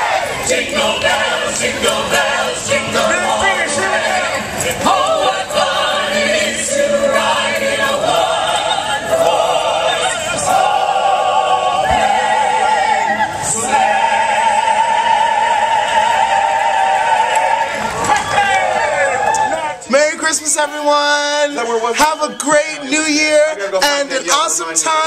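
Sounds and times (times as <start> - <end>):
group singing a carol: 0.0 - 19.4.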